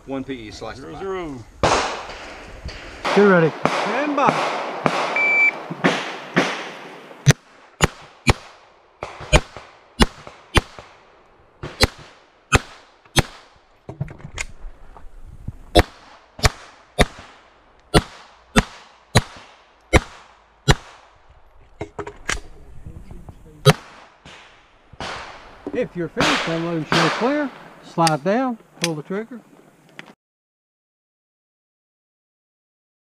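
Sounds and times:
pistol shots: 3.0s - 11.0s, 11.6s - 13.6s, 15.7s - 21.2s, 23.6s - 28.2s.

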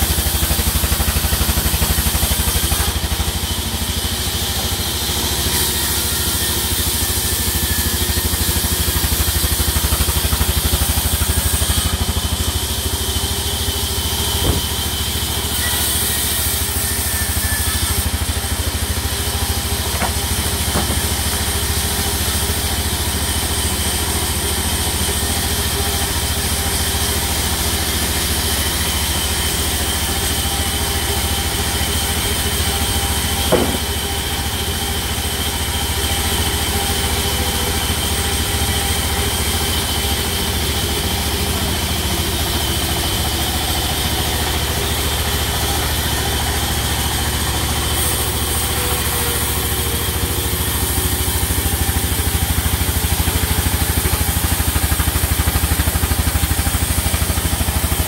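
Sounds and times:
sawmill machine drone: 0.0s - 58.0s
short knock: 14.4s - 14.8s, 33.4s - 34.1s.

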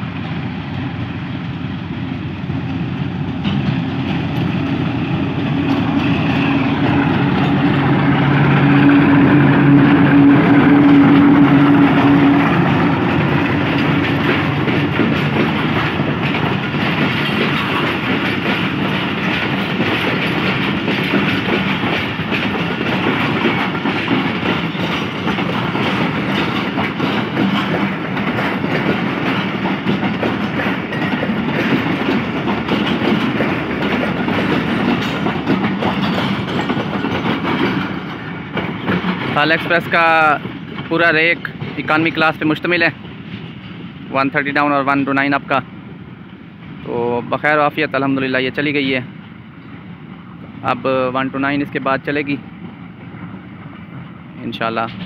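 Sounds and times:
diesel locomotive engine: 0.0s - 55.0s
passenger coaches rumbling: 0.0s - 55.0s
wheels clacking over rail joints: 2.5s - 45.6s.

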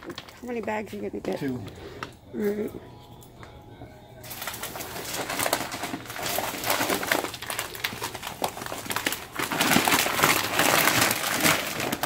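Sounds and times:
feed sacks rustling: 4.2s - 12.0s.

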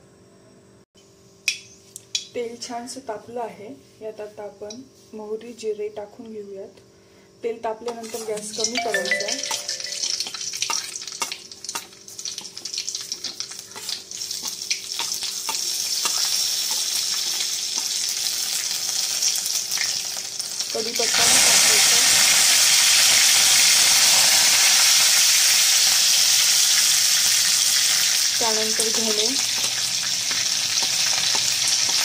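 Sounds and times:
oil sizzling: 7.9s - 32.0s
seeds popping in hot oil: 7.9s - 32.0s.

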